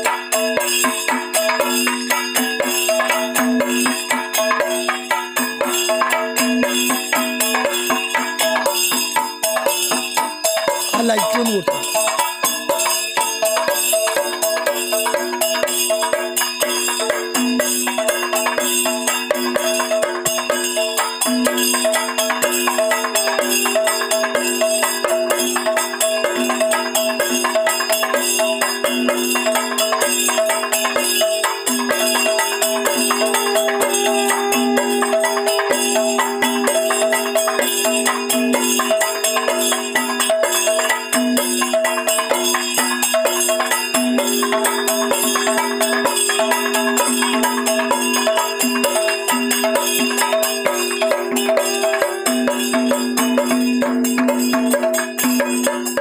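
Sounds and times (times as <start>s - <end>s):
fast continuous percussion: 0.0s - 56.0s
temple music held notes: 30.7s - 41.2s, 49.3s - 55.3s.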